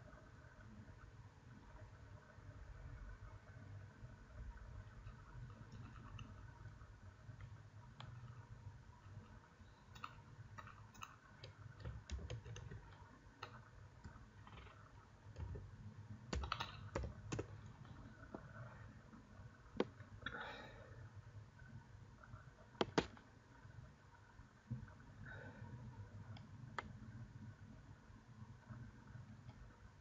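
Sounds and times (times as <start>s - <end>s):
low steady hum: 0.0s - 30.0s
mouse clicks: 9.1s - 15.6s, 16.3s - 17.6s, 22.8s - 23.2s
keyboard keys clicking: 9.9s - 14.8s, 16.3s - 17.6s, 22.8s - 23.2s.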